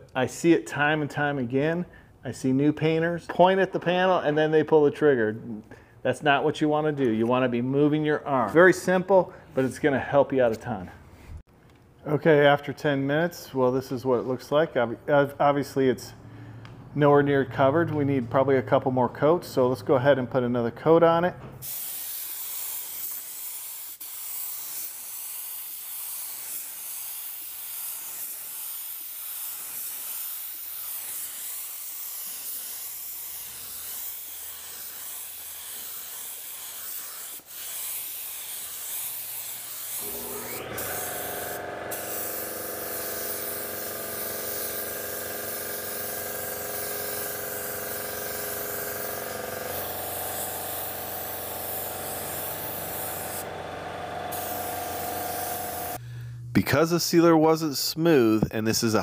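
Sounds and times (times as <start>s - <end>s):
spray gun hissing: 21.6s - 56.0s
motor humming: 40.0s - 56.4s.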